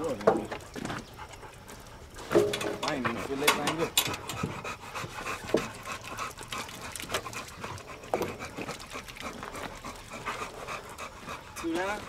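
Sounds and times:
dog panting: 0.5s - 12.0s.

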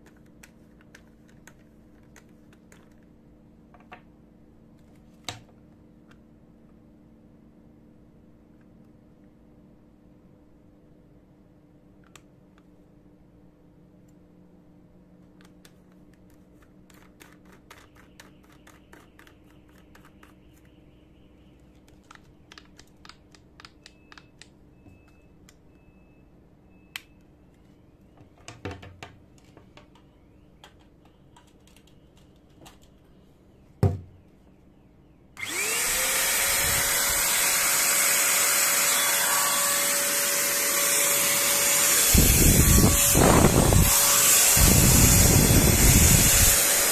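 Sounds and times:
paint sprayer motor whine: 35.4s - 46.9s
air rushing from nozzle: 41.2s - 46.9s.

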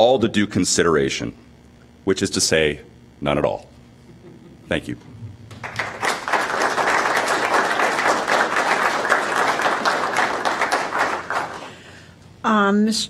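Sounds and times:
audience applauding: 5.5s - 12.0s.

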